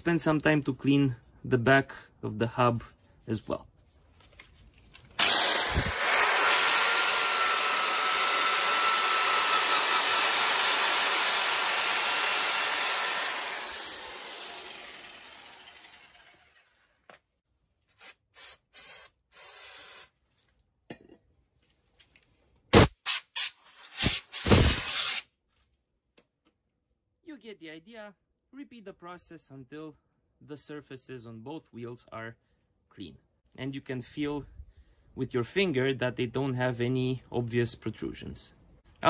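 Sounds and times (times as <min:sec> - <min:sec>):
wire brush power tool hissing: 0:05.2 - 0:16.2, 0:18.0 - 0:20.1, 0:22.8 - 0:25.2.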